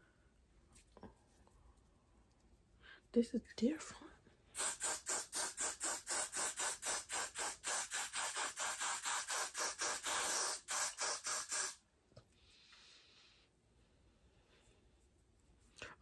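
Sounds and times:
spray bottle hissing sprays: 4.6 - 11.8.

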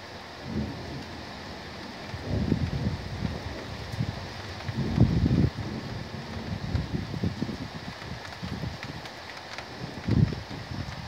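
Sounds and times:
wind buffeting microphone: 1.9 - 11.0.

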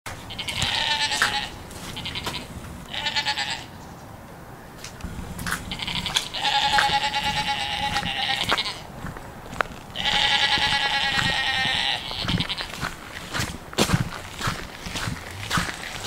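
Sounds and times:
goat bleating: 0.2 - 3.8, 5.4 - 8.9, 9.9 - 13.0.

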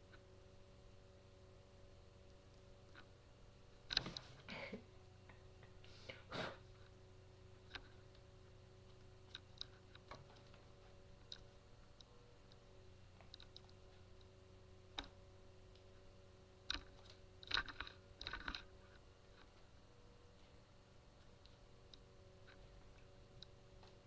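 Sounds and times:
steady low hum: 0.0 - 24.0
faint clicks and taps: 3.8 - 4.4, 7.6 - 19.7, 21.2 - 24.0.

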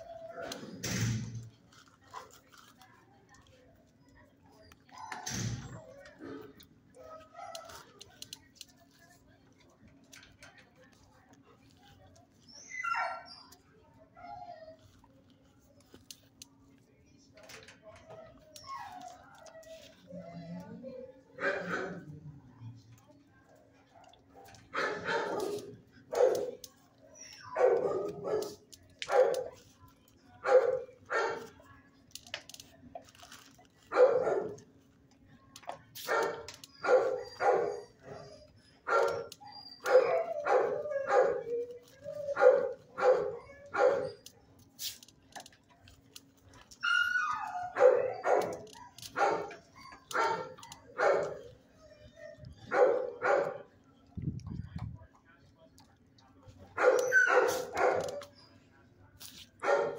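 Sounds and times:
dog barking: 24.0 - 26.6, 27.5 - 29.6, 30.4 - 31.5, 33.9 - 34.6, 36.0 - 37.9, 38.9 - 41.5, 42.4 - 44.2, 47.7 - 51.5, 52.6 - 53.7, 56.8 - 58.3, 59.6 - 59.9.

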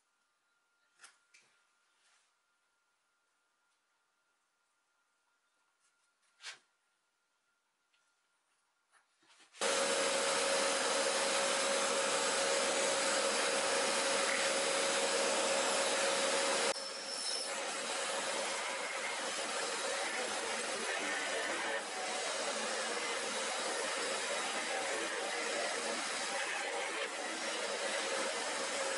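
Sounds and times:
mortiser cutting wood: 9.6 - 28.9
workshop vacuum running: 9.6 - 28.9.

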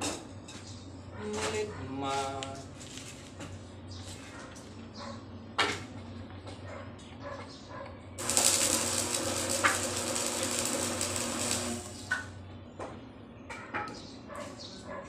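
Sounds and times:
arc welding crackling hiss: 8.2 - 12.3.

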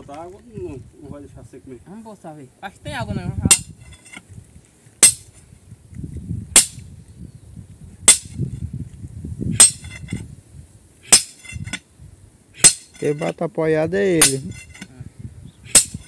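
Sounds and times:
sledgehammer striking steel bar: 3.5 - 3.7, 5.0 - 5.3, 6.6 - 6.8, 8.1 - 8.4, 9.5 - 10.2, 11.0 - 11.8, 12.6 - 13.3, 14.2 - 14.9, 15.7 - 16.0.

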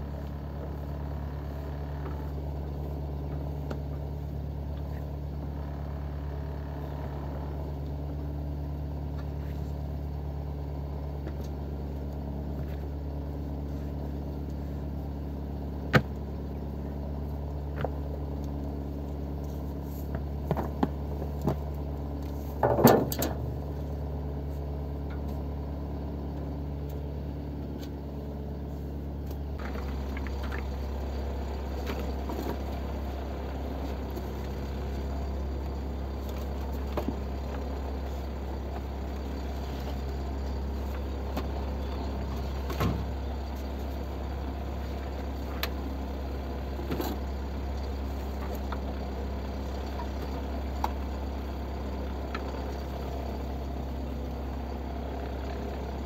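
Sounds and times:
motorboat engine droning: 0.0 - 56.0
sharp knocks and clatters: 22.6 - 23.5.

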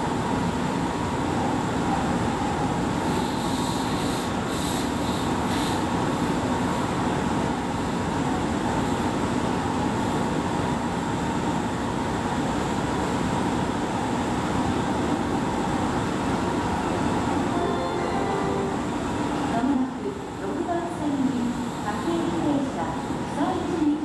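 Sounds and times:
electric train equipment humming: 14.8 - 22.3
faint constant high tone: 17.3 - 19.4.

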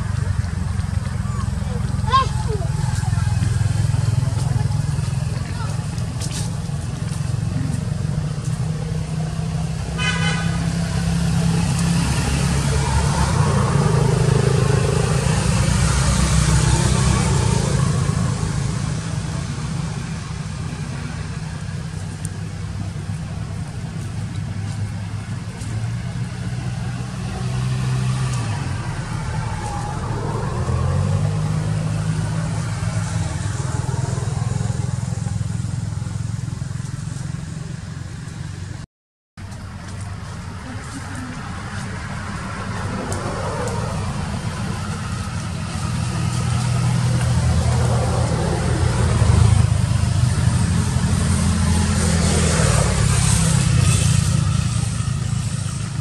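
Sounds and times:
vehicle engine droning: 0.0 - 38.8, 39.4 - 56.0.

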